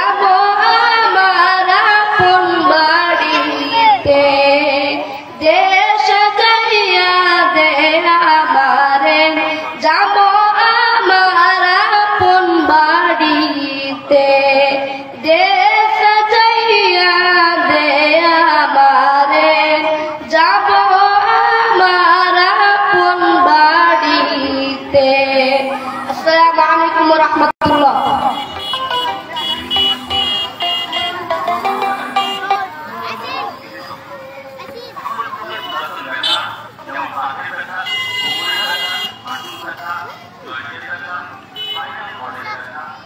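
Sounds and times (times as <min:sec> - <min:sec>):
boy singing unaccompanied: 0:00.0 - 0:33.6.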